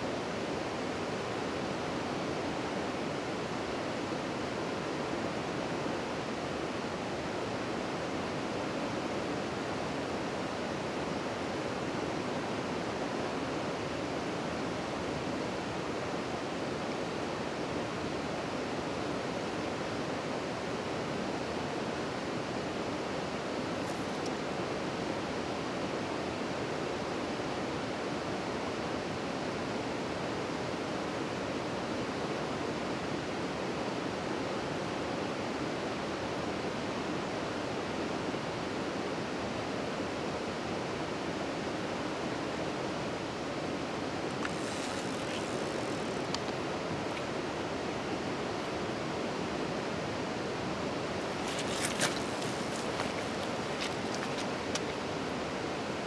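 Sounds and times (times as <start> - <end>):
flowing river water: 0.0 - 56.0
faint ticks: 44.3 - 47.3.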